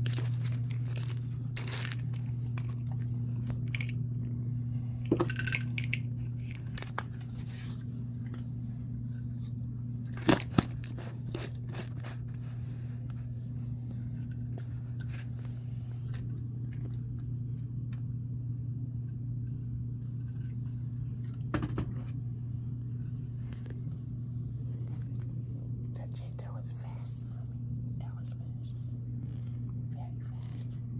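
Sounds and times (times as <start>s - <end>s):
cat chewing and licking: 0.0s - 4.0s
steady low hum: 0.0s - 30.9s.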